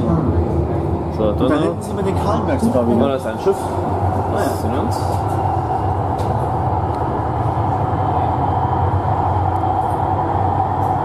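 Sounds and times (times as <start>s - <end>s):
vehicle running rumble and hum: 0.0s - 11.0s.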